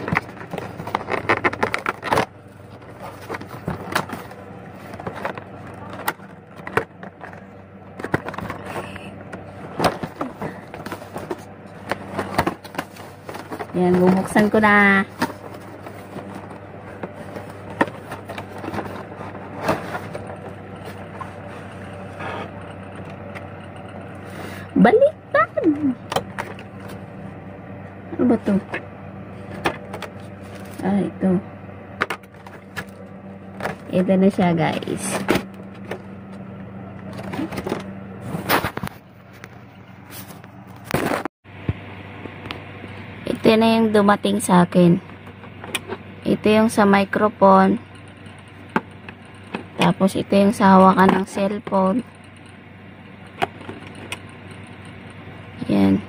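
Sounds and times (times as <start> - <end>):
plastic packaging rustling: 0.0 - 22.0
low hum: 0.0 - 56.0.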